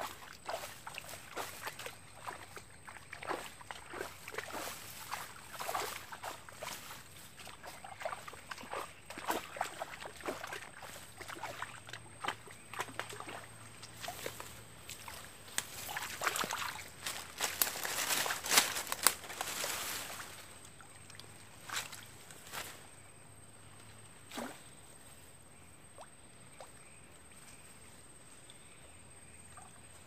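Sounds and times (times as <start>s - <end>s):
grass rustling and crackling: 0.0s - 11.6s, 12.3s - 20.8s, 21.4s - 23.0s
water sloshing and splashing: 0.0s - 22.5s.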